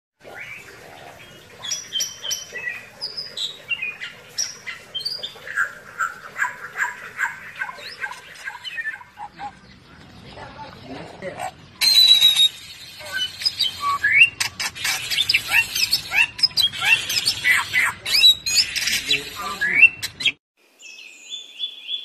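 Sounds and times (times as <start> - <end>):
bird singing whistled notes: 11.8 - 14.4.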